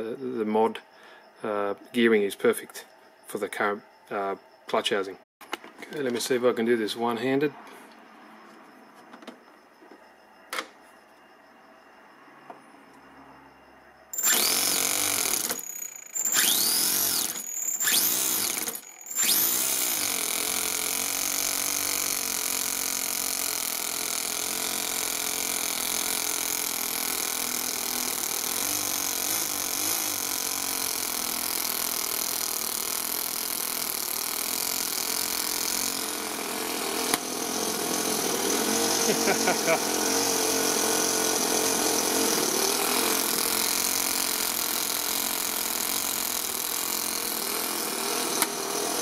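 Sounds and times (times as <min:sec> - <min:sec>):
model engine running: 0:14.2 - 0:49.0
starter cranking: 0:14.2 - 0:49.0.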